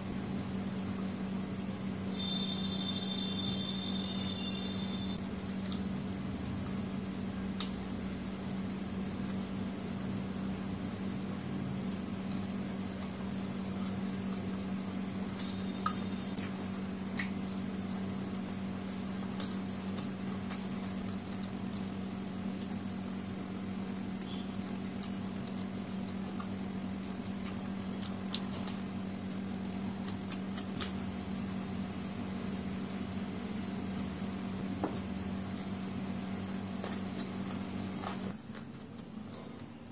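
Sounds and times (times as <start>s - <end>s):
low hum with high whine: 0.0s - 39.9s
chewing and smacking: 18.8s - 22.8s, 23.9s - 28.9s.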